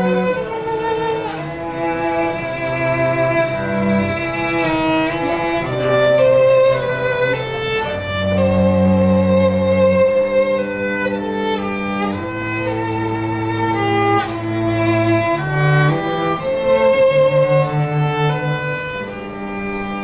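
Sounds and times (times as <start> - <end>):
cello and violin duo: 0.0 - 20.0.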